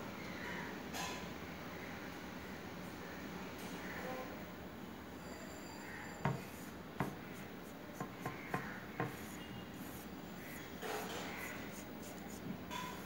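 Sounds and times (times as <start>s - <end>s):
hand rubbing paper: 6.4s - 13.0s
sharp taps on paper: 7.0s - 7.2s, 8.0s - 9.4s.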